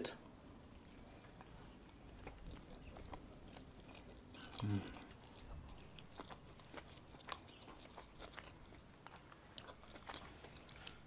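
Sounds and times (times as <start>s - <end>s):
faint chewing: 0.6s - 11.0s
soft mouth clicks: 4.4s - 5.4s.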